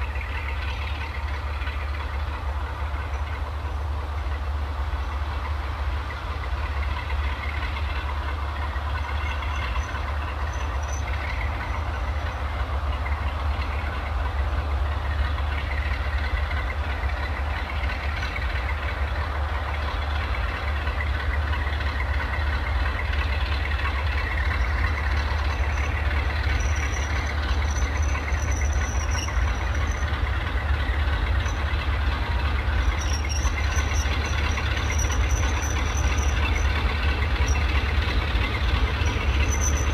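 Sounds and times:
diesel locomotive engine hum: 0.0s - 39.9s
freight train rumble: 0.0s - 39.9s
faint high brake squeal: 9.0s - 12.6s, 24.3s - 31.9s, 32.5s - 39.9s.

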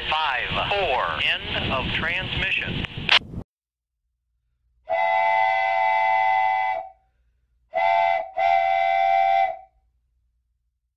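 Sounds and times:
locomotive air horn blasts: 4.9s - 7.0s, 7.7s - 9.7s.

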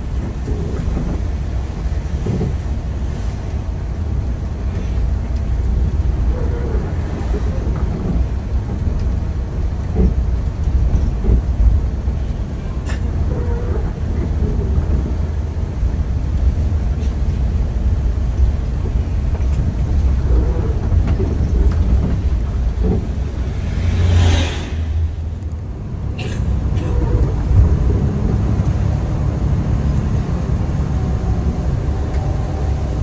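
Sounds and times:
coach engine and tyres rumbling: 0.0s - 33.0s.

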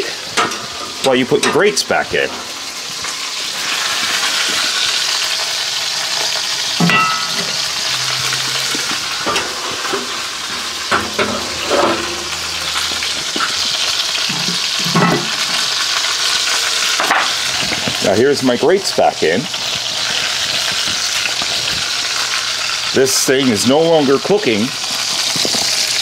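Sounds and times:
metal grill grate clanking: 0.3s - 3.2s, 6.7s - 15.7s.

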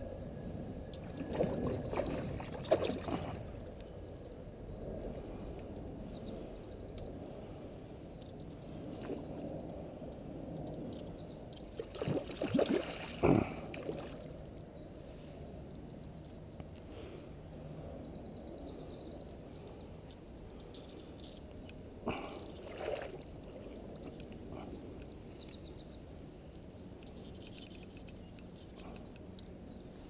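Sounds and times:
water sloshing: 1.2s - 3.5s, 11.8s - 14.2s
fish thrashing and splashing: 11.8s - 14.2s.

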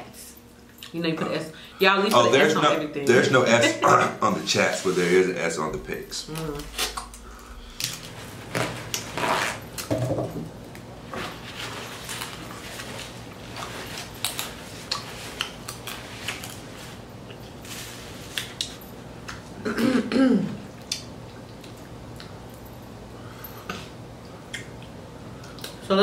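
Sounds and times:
person clearing throat: 19.6s - 20.6s.

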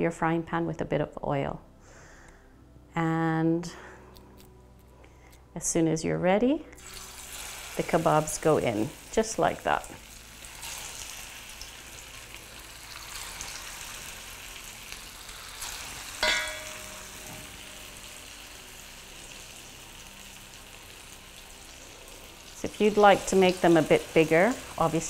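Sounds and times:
food sizzling in a frying pan: 6.8s - 25.0s
sharp ringing clink: 16.2s - 18.1s.

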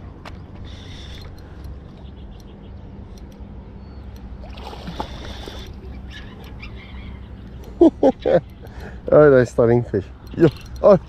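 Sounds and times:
water splashing: 4.4s - 6.0s.

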